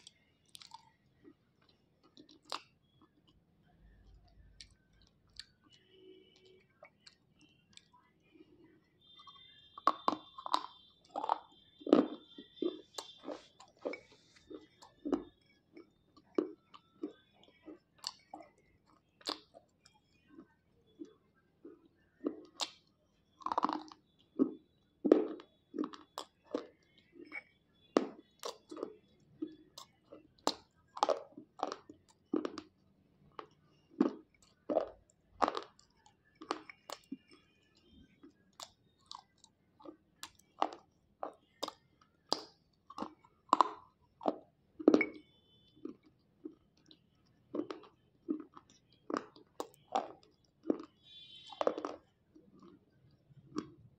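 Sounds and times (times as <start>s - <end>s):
crunchy chewing: 0.0s - 53.9s.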